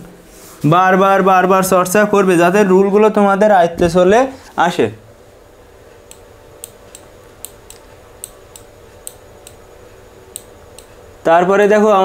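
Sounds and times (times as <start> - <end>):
faint steady hum: 0.0 - 12.0
computer clicks: 6.0 - 9.6, 10.3 - 11.0.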